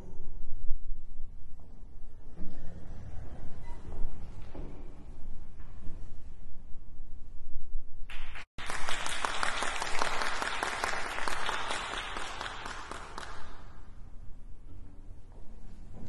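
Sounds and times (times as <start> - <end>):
audience applauding: 8.1 - 13.8.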